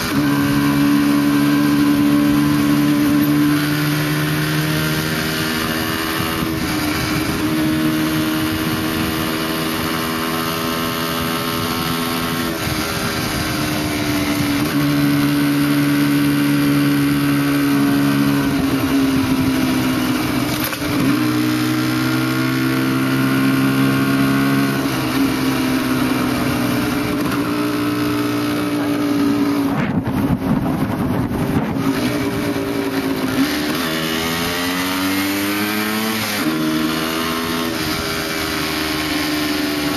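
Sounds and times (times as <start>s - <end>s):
wind noise: 0.0s - 10.1s, 10.8s - 21.3s, 28.9s - 34.2s
motorcycle engine revving: 0.0s - 39.9s.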